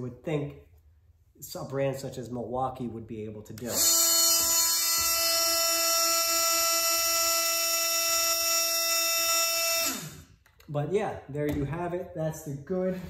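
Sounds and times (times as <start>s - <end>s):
oscillating multi-tool buzzing: 3.7s - 10.4s.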